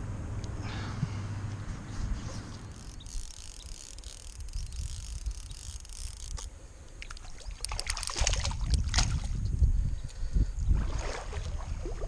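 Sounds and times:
low wind rumble: 0.0s - 12.0s
small splashes and ticks: 2.7s - 10.2s
water sloshing and splashing: 7.0s - 9.5s, 10.7s - 12.0s.

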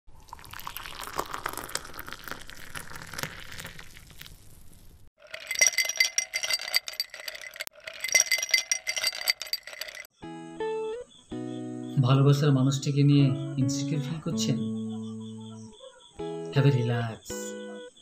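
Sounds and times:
glassy clinks: 5.2s - 10.1s
chime-like ringing tones: 5.3s - 10.1s.

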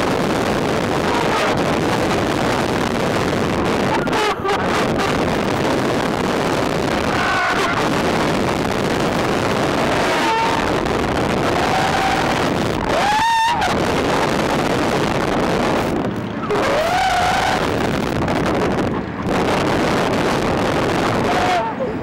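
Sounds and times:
heavy wind on microphone: 0.0s - 22.0s
riders yelling and screaming: 0.4s - 2.6s, 3.5s - 5.4s, 6.6s - 8.3s, 9.2s - 14.3s, 16.4s - 17.9s, 21.0s - 22.0s.

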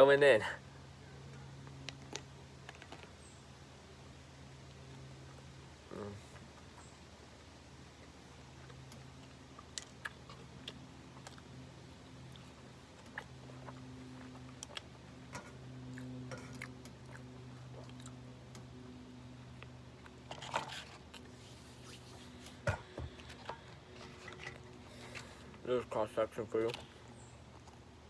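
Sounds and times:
steady low hum: 0.0s - 28.0s
person chewing food: 7.9s - 21.4s.

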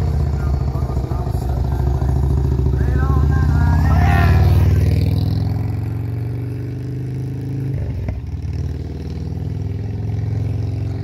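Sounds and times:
vehicle engine idling: 0.0s - 5.9s.

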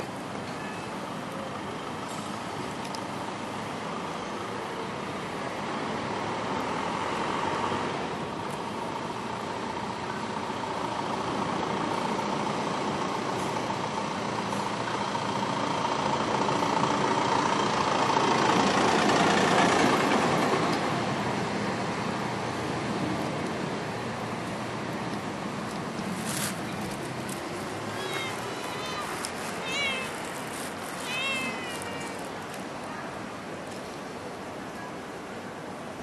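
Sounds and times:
vehicle passing: 15.7s - 32.5s.

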